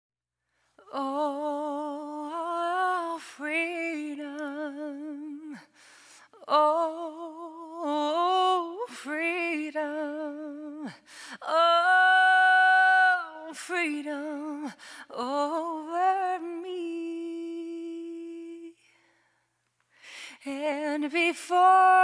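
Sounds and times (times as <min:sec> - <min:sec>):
woman singing wordless melody: 0:00.8 - 0:19.1, 0:20.3 - 0:22.0
singer breathing: 0:05.6 - 0:06.4, 0:11.0 - 0:11.4, 0:14.7 - 0:15.1, 0:18.9 - 0:20.5.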